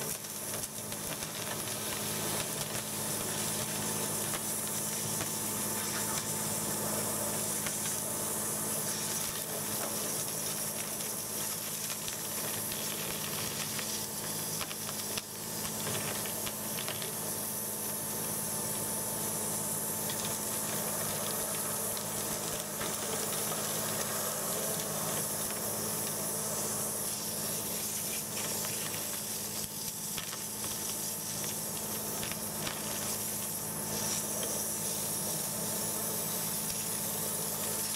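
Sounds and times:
high-pressure water jet hissing: 0.0 - 37.9
steady mechanical hum: 0.0 - 37.9.

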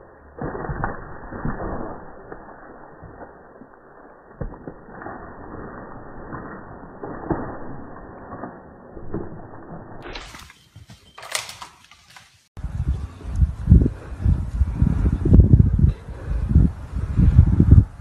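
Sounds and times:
rustling through undergrowth: 10.0 - 12.5.

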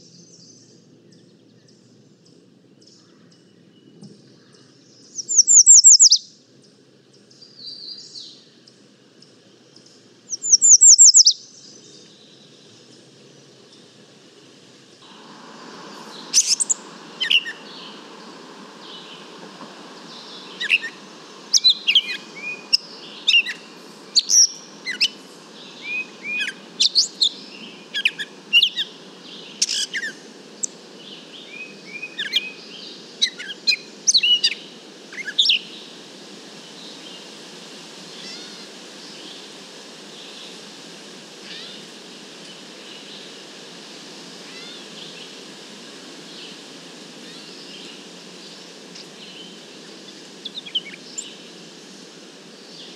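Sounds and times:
background hiss: 0.0 - 52.9
bird singing varied notes: 2.8 - 6.3, 9.8 - 12.5, 15.1 - 34.6.

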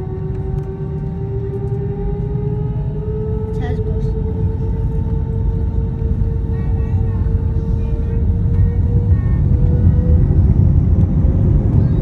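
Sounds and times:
jet engines low rumble: 0.0 - 12.0
steady cabin hum: 3.6 - 12.0.

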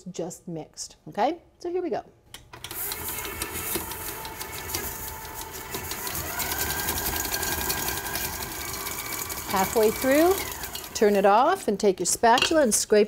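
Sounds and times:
stand mixer whirring: 2.7 - 11.5.

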